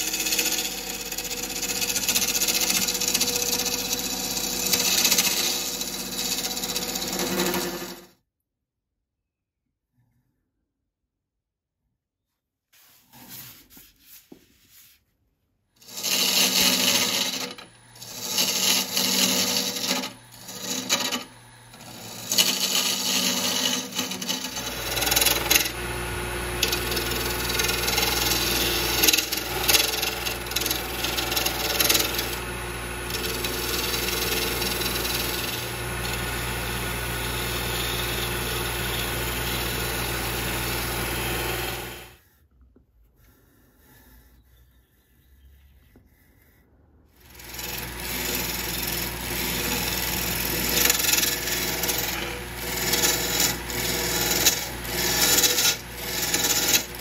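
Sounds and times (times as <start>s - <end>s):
lathe tool cutting: 0.0s - 8.1s, 15.8s - 42.2s, 47.2s - 57.0s
sanding spinning wood: 0.0s - 8.1s, 15.8s - 42.2s, 47.2s - 57.0s.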